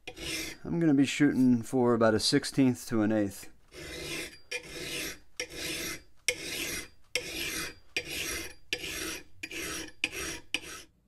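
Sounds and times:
file scraping steel axe edge: 0:00.0 - 0:00.7, 0:03.7 - 0:11.0.

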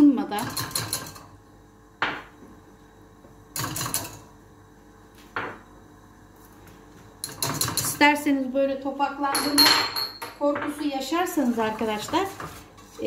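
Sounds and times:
kitchenware clatter: 0:00.3 - 0:01.3, 0:03.5 - 0:04.3, 0:07.2 - 0:08.2, 0:09.2 - 0:13.0.

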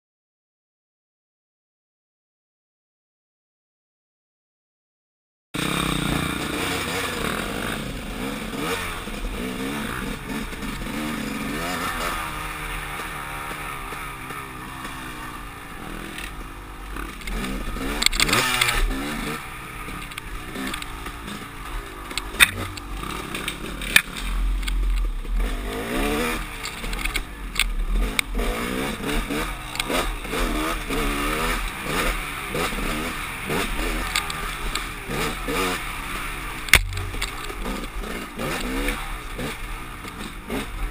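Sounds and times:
dirt bike engine revving: 0:05.6 - 0:40.9
bike knocks and clatter: 0:20.0 - 0:25.4, 0:36.6 - 0:40.9.

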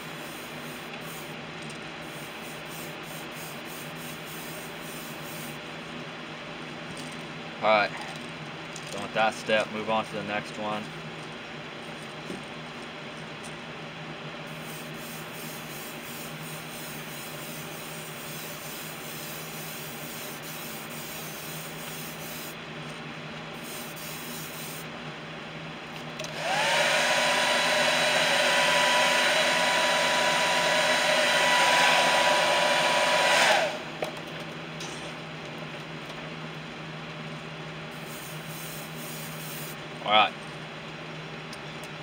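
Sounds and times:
low steady background hum: 0:00.0 - 0:26.3
blow dryer motor and air rush: 0:26.2 - 0:34.1.

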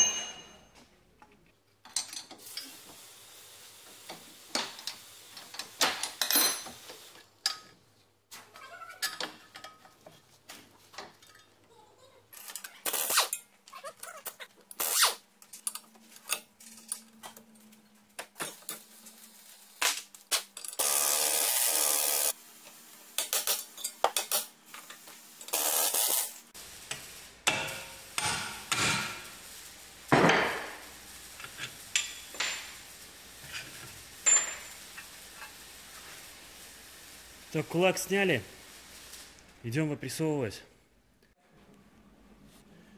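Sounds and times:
wrenches and metal parts clinking: 0:04.8 - 0:07.8, 0:11.0 - 0:11.7, 0:12.3 - 0:19.3, 0:23.2 - 0:26.3, 0:31.3 - 0:36.2
power tool burst: 0:20.8 - 0:22.4.

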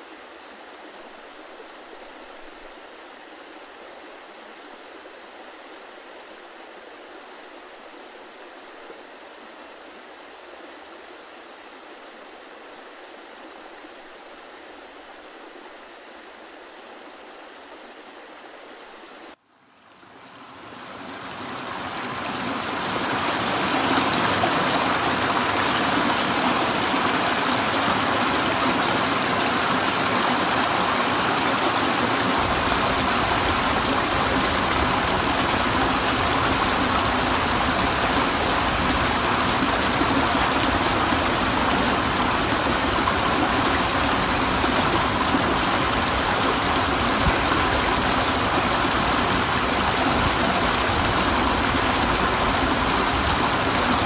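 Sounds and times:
river rapids rushing: 0:20.5 - 0:54.0.

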